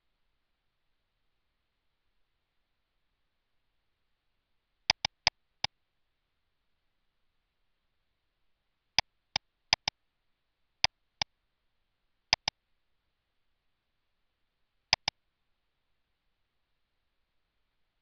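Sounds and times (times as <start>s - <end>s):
computer mouse button clicking: 4.9s - 5.3s.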